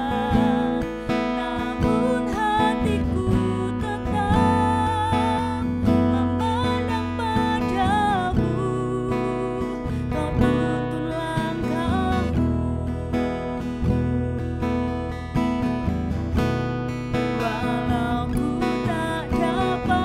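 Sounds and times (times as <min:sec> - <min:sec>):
woman singing: 0:00.0 - 0:15.8, 0:17.1 - 0:20.0
strummed acoustic guitar: 0:00.0 - 0:20.0.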